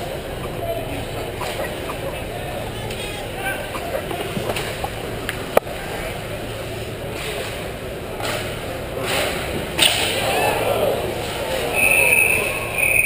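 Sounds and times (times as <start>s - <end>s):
arena crowd murmur: 0.0s - 13.0s
sharp crack: 8.2s - 10.4s.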